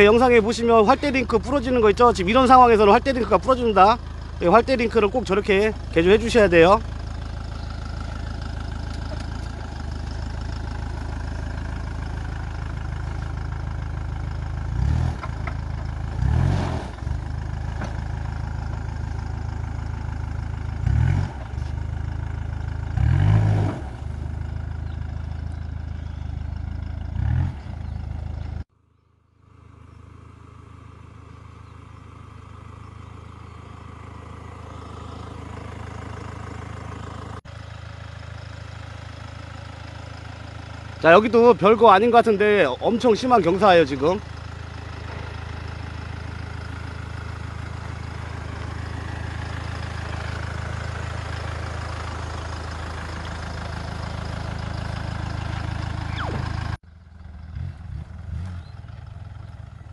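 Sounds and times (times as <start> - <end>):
distant engine: 0.0 - 59.9
engine running with short revs: 0.0 - 59.9.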